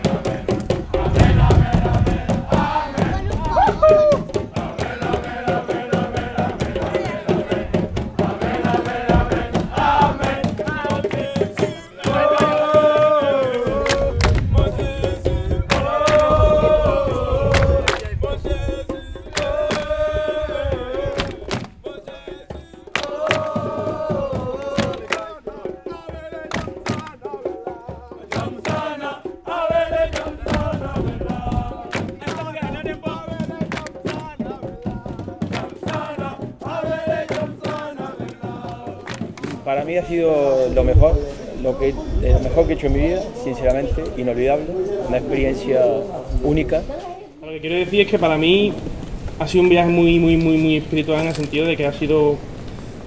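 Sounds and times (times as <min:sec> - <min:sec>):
sharp percussion hits: 0:00.0 - 0:40.3
song with sung melody: 0:00.0 - 0:47.0.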